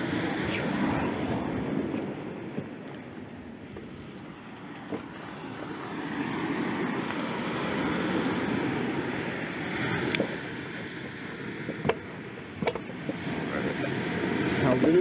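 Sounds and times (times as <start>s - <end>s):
broad rumbling noise: 0.0s - 5.8s.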